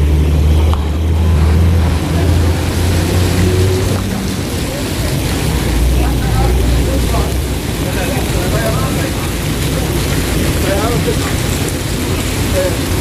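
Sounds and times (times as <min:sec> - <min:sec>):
diesel coach engines rumbling: 0:00.0 - 0:13.0
rain hissing on wet street: 0:00.0 - 0:13.0.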